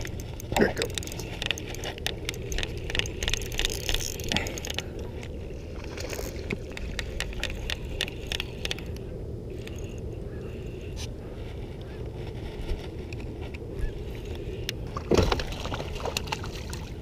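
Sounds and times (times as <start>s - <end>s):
fishing reel clicking and rattling: 0.0s - 5.3s, 6.0s - 10.1s.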